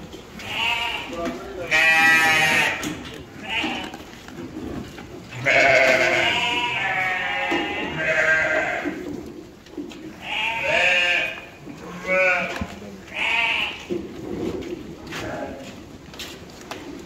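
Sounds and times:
goats bleating: 0.3 - 4.2, 5.2 - 9.1, 10.1 - 13.9, 15.0 - 15.8.

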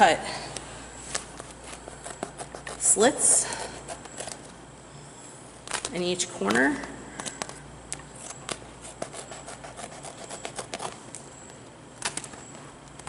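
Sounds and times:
tape crinkling: 5.6 - 6.0, 7.1 - 13.0.

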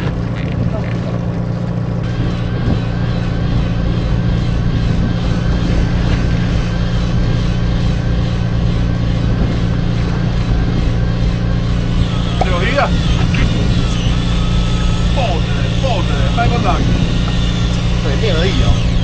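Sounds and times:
boat engine droning: 0.0 - 19.0
faint wavering whine: 1.9 - 19.0.

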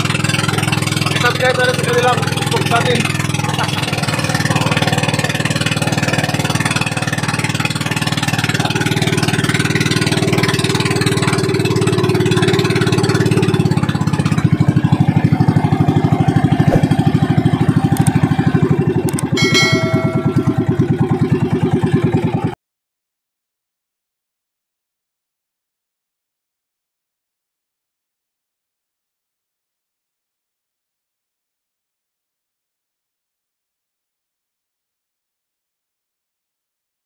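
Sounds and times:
small boat engine running: 0.0 - 22.6
brief high tone: 19.4 - 21.0.

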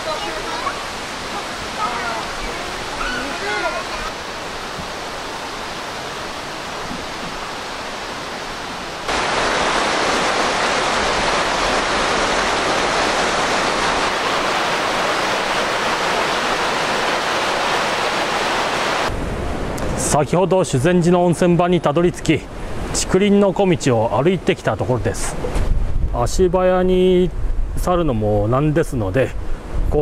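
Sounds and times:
rushing river water: 0.0 - 20.0.

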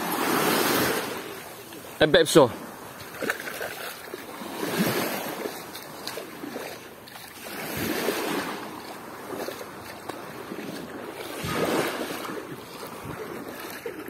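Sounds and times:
waves washing against shore: 0.0 - 14.0
wind buffeting microphone: 7.6 - 14.0.

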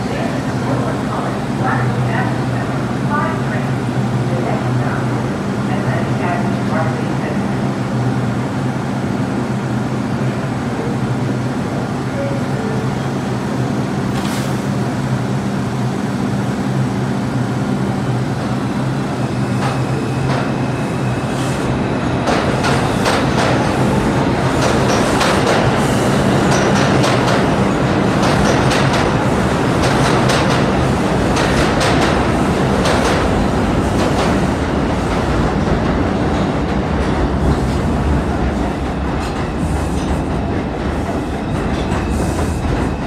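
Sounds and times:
subway train humming: 0.0 - 43.0
train wheels clicking over rail joints: 24.5 - 27.6, 28.2 - 29.2.

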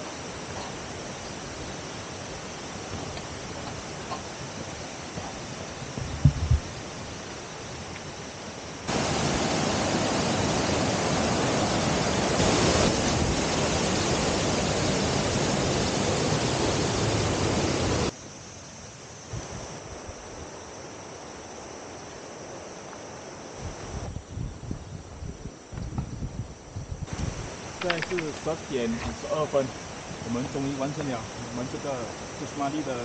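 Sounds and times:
river rapids and waterfall: 0.0 - 6.0, 6.7 - 18.2, 27.1 - 33.0.

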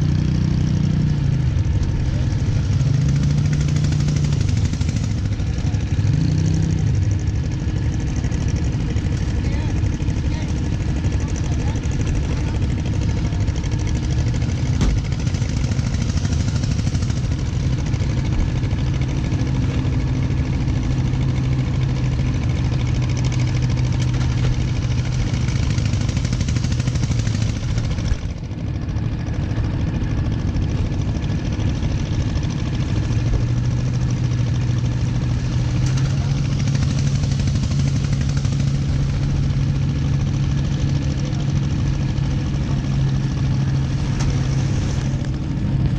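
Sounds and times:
boat engine running: 0.0 - 45.9.

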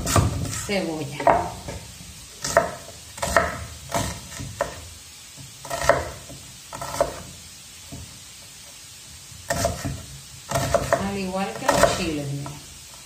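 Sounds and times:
knife chopping onion on wooden board: 0.0 - 7.3, 9.5 - 12.6.

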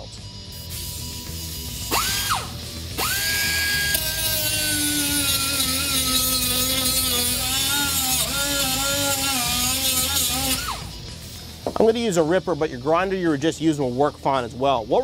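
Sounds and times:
air angle grinder whining: 0.9 - 11.8.

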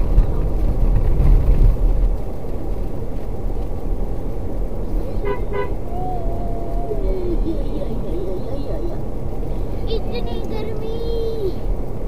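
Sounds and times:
car road and engine rumble: 0.0 - 12.0
car horn toots: 5.2 - 5.8.

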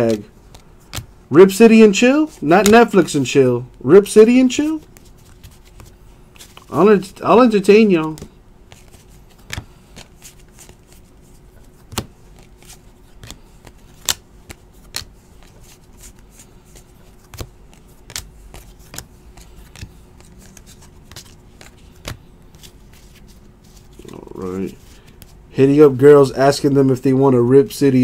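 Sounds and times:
cards flicked and set down: 0.0 - 1.1, 2.6 - 3.0, 8.0 - 11.0, 11.7 - 23.2
faint steady hum: 0.0 - 28.0.

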